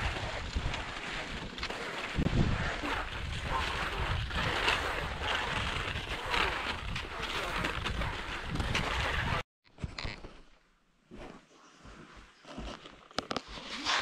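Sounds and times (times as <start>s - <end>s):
strong wind buffeting microphone: 0.0s - 9.4s.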